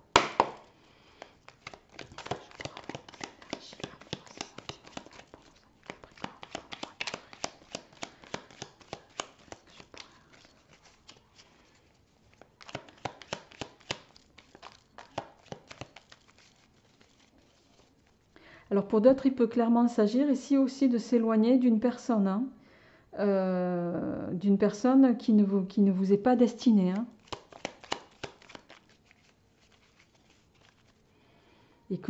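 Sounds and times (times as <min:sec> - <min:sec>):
cards being shuffled: 0:00.0 - 0:18.3, 0:26.9 - 0:31.0.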